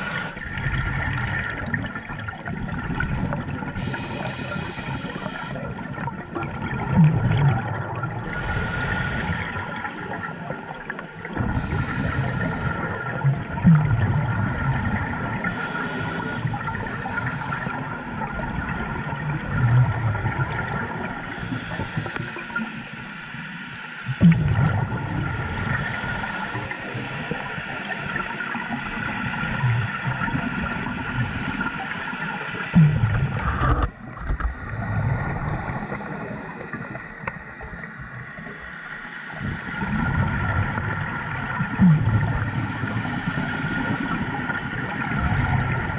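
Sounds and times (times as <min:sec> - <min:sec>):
hissing regulator inhale: 0:00.0 - 0:00.4, 0:03.8 - 0:05.8, 0:08.3 - 0:10.7, 0:11.5 - 0:13.0, 0:15.4 - 0:17.8, 0:20.5 - 0:23.8, 0:25.6 - 0:27.8, 0:34.3 - 0:38.0, 0:42.4 - 0:44.6.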